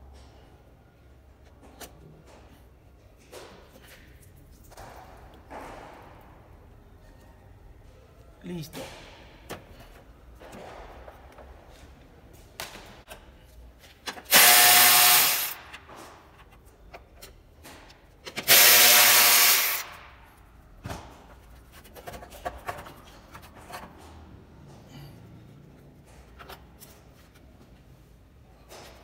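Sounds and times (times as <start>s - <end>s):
power tool motor whining: 14.3s - 15.6s, 18.5s - 19.9s.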